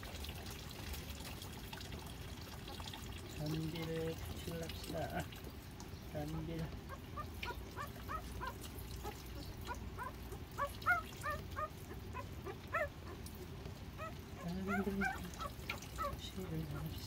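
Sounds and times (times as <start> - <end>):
puppies squeaking and whimpering: 6.8 - 17.0.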